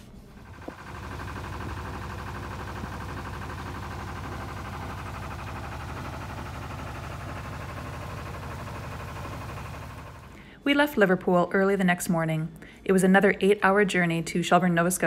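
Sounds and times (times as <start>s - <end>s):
boat engine running: 0.4s - 10.4s.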